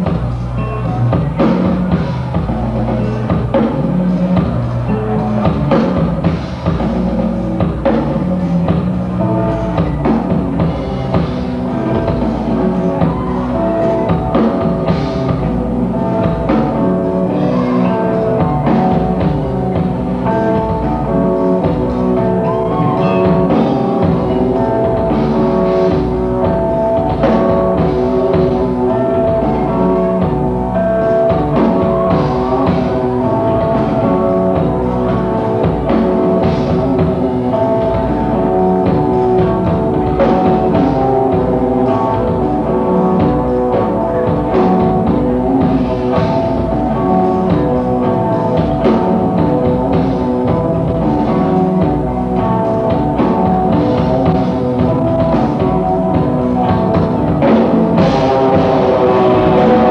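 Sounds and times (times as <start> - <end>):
rock band playing live: 0.0 - 59.9.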